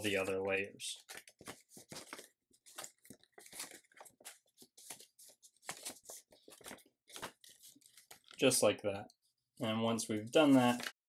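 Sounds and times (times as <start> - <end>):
paper rustling and crinkling: 1.0 - 8.4, 10.4 - 11.0.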